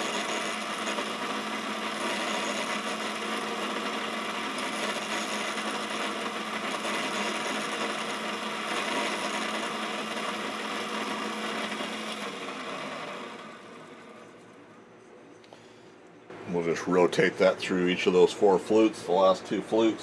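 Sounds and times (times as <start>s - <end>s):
grinding wheel hiss: 0.0s - 14.4s
motor hum: 0.0s - 16.7s.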